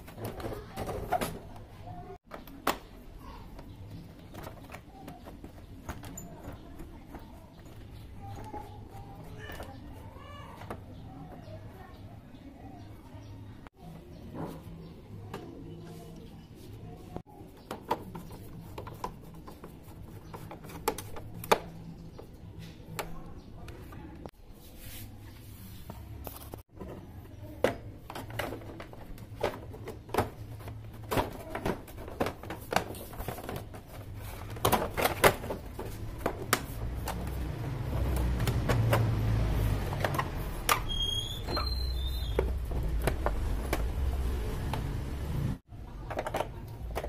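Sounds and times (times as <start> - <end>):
plastic panels being handled: 25.8 - 45.2, 45.9 - 47.0
short high squeaks: 40.8 - 42.4.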